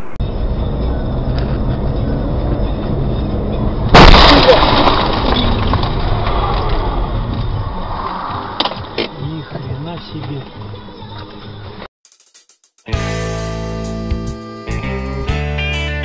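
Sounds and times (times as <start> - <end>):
car interior road noise: 0.0 - 4.0, 5.0 - 11.8
vehicle crash with breaking glass: 3.8 - 8.9.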